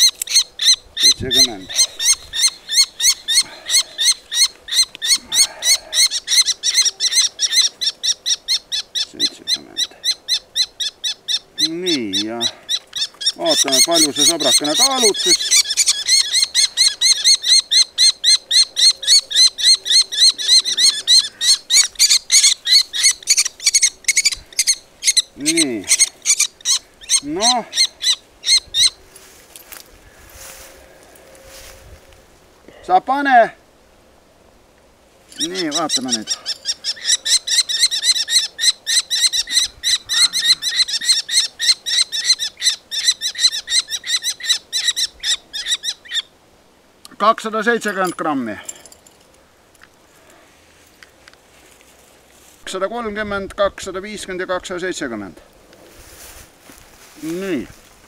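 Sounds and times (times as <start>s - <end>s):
kestrel chick shrill calls: 0.0s - 29.0s, 35.4s - 46.3s.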